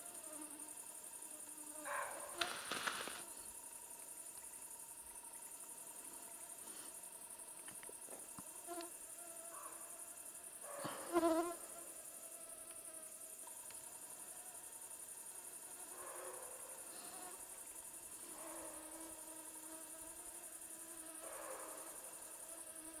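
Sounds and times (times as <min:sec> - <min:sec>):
mosquito whine: 0:00.0 - 0:03.6
field insects chirring: 0:00.0 - 0:23.0.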